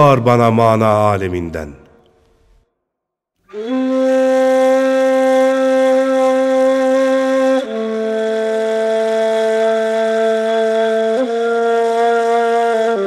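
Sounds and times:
end-blown flute playing held notes: 3.5 - 13.0.

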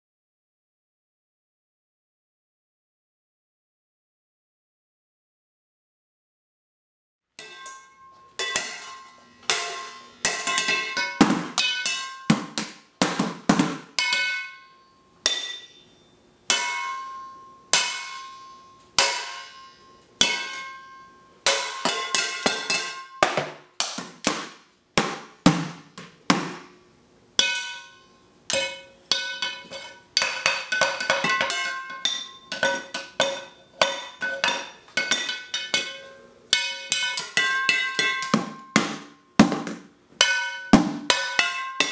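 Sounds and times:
child drumming on pots and pans: 7.4 - 14.6, 16.5 - 19.6, 20.2 - 26.7, 27.4 - 41.9.

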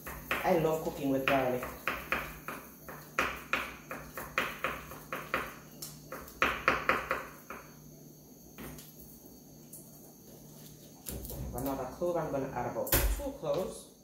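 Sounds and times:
knife chopping on wooden board: 0.0 - 0.6, 1.2 - 7.7.

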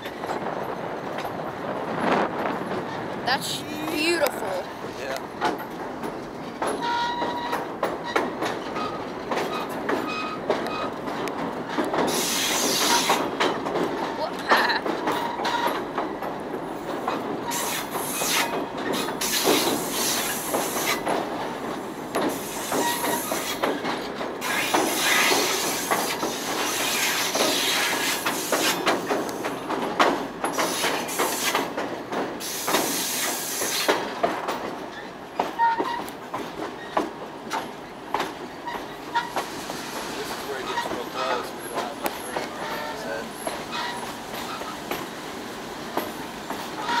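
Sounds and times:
railroad cars rattling on track: 0.0 - 47.0
wheels and couplings clanking: 0.0 - 47.0.

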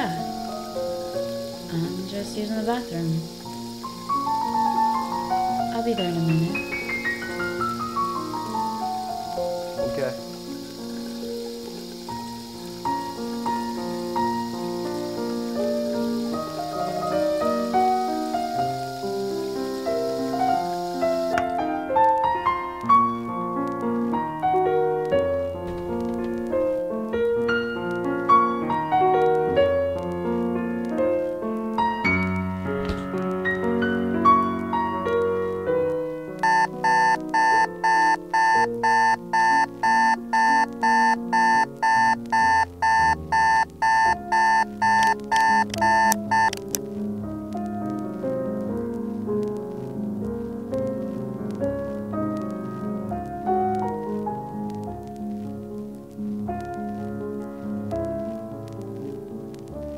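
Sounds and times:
soft piano music: 0.0 - 59.9
alarm clock beeping: 36.4 - 46.6.

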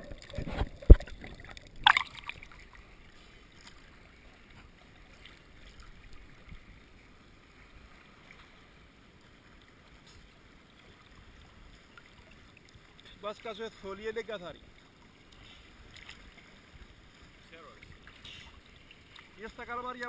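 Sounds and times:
sea water lapping: 0.0 - 20.0
water drips and sloshes: 0.0 - 20.0.

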